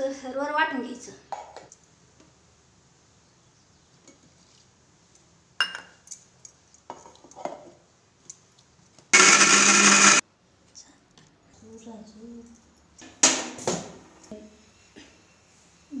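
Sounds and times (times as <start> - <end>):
mixer grinder running: 9.2 - 10.2.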